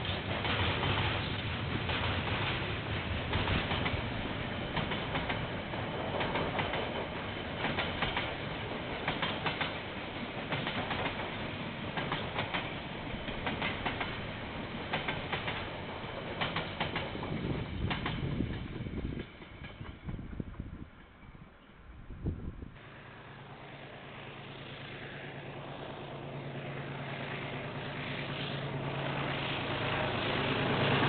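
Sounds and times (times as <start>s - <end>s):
wheels clacking on rail joints: 0.0s - 21.2s
train rumbling past: 0.0s - 31.0s.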